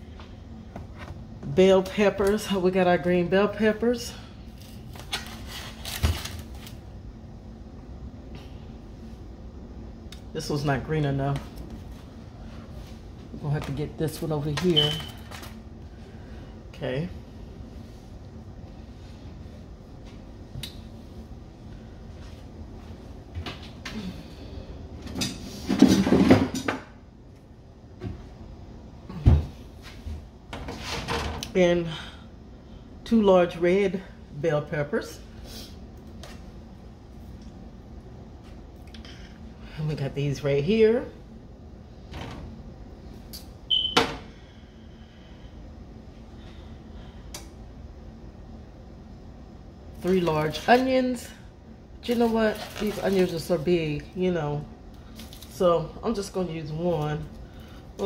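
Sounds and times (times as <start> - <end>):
kitchen clatter and rustle: 25.0 - 26.9, 30.5 - 31.5, 52.1 - 53.7.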